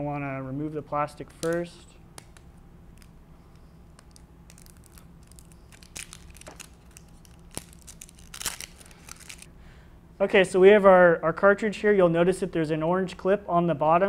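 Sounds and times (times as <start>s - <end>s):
plastic wrapping crinkling: 4.0s - 9.5s.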